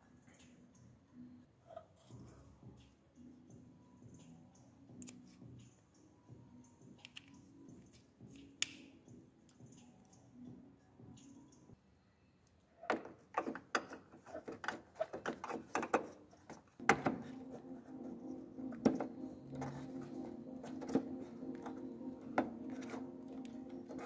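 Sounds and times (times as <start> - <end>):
steady low hum: 16.8 - 24.0.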